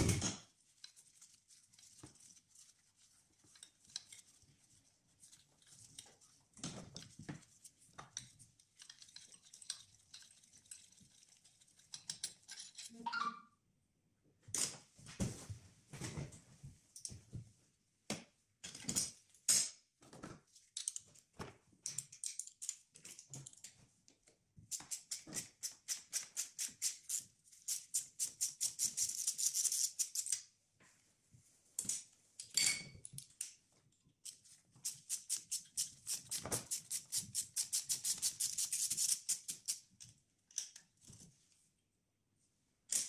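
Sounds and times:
tools clinking and knocking: 31.8s - 33.6s.

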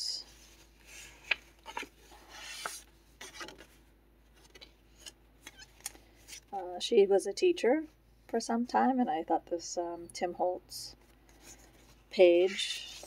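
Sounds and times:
paper pages rustling: 0.3s - 6.5s, 11.3s - 13.0s.

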